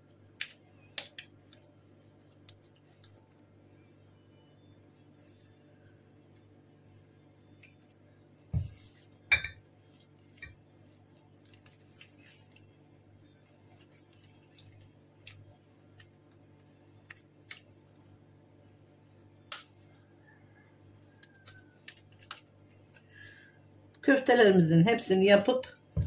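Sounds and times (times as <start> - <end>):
low steady hum: 0.0 - 26.0
small wet clicks: 0.1 - 3.5, 5.2 - 5.6, 7.4 - 8.1, 9.9 - 18.2, 21.2 - 23.2
glass bowl clink: 9.3 - 9.6.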